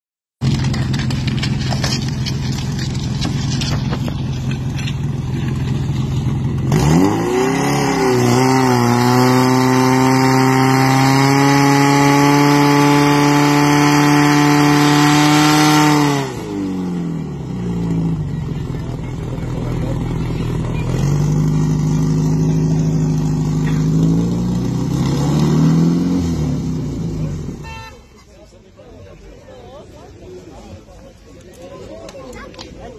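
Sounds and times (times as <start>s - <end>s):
pump engine revving: 0.4s - 17.0s.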